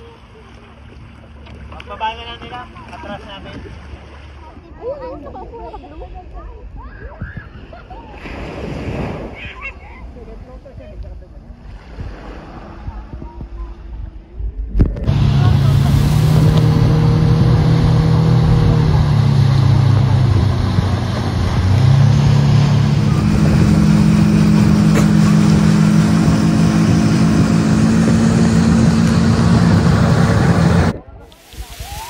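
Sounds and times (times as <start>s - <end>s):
speedboat engine running: 0.0s - 4.6s, 14.8s - 31.6s
rush of wind and water: 0.0s - 32.0s.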